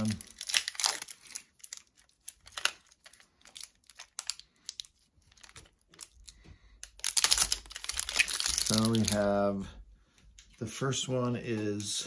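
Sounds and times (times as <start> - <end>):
plastic wrapping crinkling and tearing: 0.0 - 9.4.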